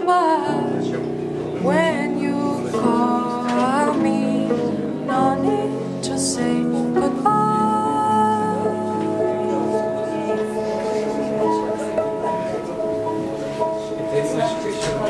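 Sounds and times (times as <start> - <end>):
woman singing: 0.0 - 10.9
acoustic guitar: 0.0 - 15.0.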